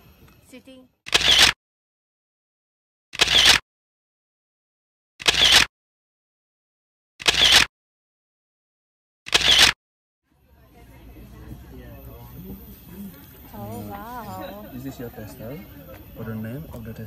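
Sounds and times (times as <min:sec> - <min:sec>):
camera shutter clicks: 0:01.1 - 0:01.6, 0:03.2 - 0:03.6, 0:05.2 - 0:05.7, 0:07.2 - 0:07.7, 0:09.3 - 0:09.8.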